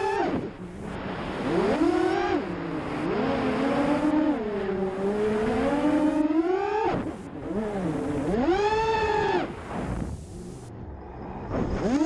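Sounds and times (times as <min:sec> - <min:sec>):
quadcopter motors whining: 0:00.0 - 0:00.7, 0:01.4 - 0:09.6.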